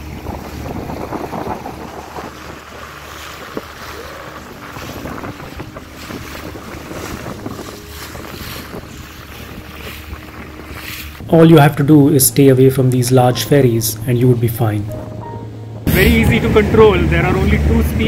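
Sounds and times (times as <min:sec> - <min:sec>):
wind buffeting microphone: 0:00.0 - 0:12.2
motorboat engine hum: 0:00.0 - 0:18.0
water rushing along hull: 0:00.0 - 0:18.0.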